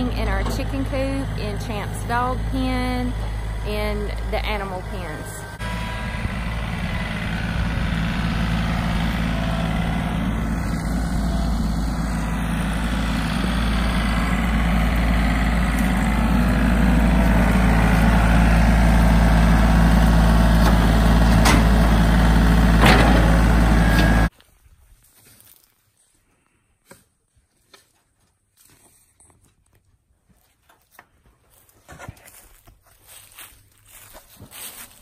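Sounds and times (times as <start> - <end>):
tractor engine running: 0.0 - 24.3.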